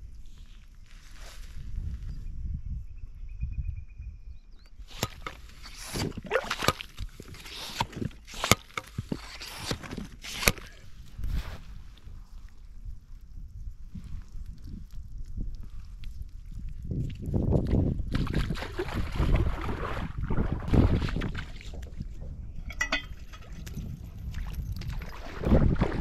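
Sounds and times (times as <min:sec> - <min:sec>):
pump squelching in wet sand: 0:04.8 - 0:12.0.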